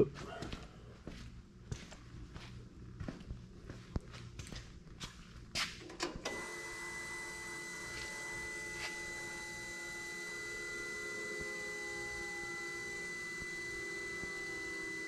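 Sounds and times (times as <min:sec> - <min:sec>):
electric fuel pump whine: 0:05.8 - 0:15.0.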